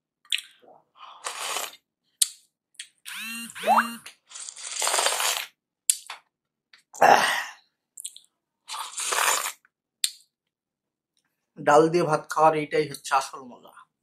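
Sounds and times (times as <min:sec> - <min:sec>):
person slurping food: 0:00.3 - 0:01.9, 0:04.3 - 0:05.6, 0:08.6 - 0:09.7.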